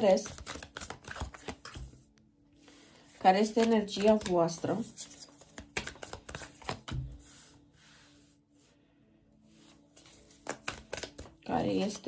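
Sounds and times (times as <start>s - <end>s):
cards being shuffled: 0.0s - 2.1s, 3.1s - 7.5s, 9.6s - 12.0s.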